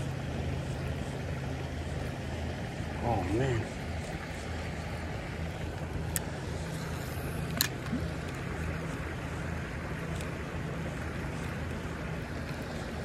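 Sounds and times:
creek flowing over stones: 0.0s - 13.0s.

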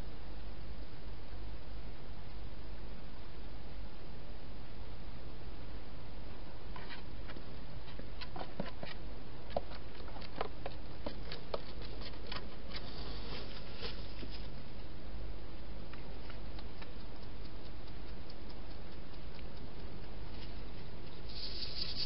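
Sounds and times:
microphone hiss and hum: 0.0s - 22.0s
rustle: 0.0s - 22.0s
small clicks and crackles: 15.9s - 22.0s.

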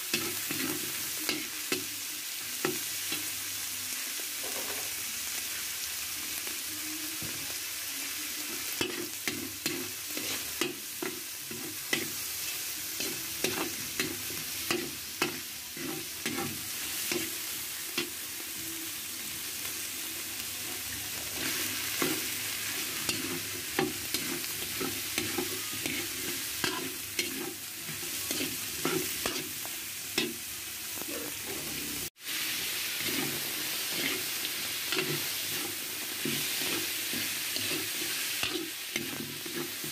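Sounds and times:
food sizzling in oil: 0.0s - 39.9s
metal spatula scraping wok: 8.8s - 18.1s, 21.3s - 30.4s, 31.1s - 39.9s.

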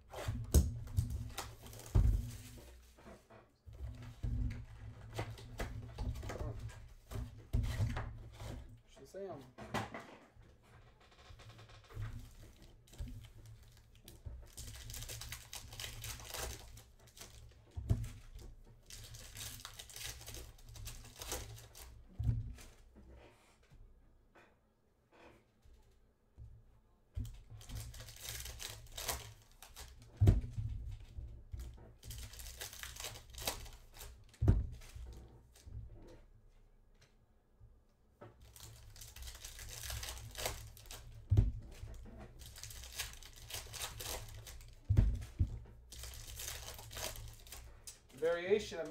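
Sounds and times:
foil packs tearing and crinkling: 14.5s - 17.5s, 18.8s - 21.9s, 27.6s - 30.0s, 32.0s - 34.2s, 38.4s - 41.2s, 42.4s - 44.9s, 45.9s - 47.7s.

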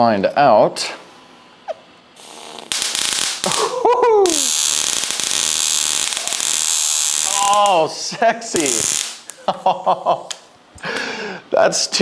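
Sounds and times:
electric arc crackling: 2.2s - 9.4s
person exclaiming: 3.5s - 4.5s, 7.2s - 8.9s.

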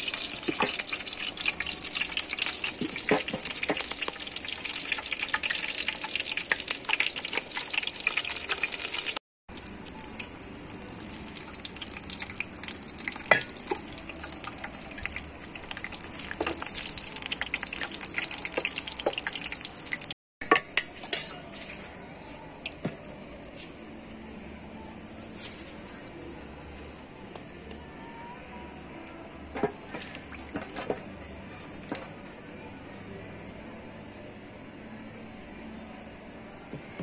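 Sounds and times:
food sizzling and popping: 0.0s - 20.9s.

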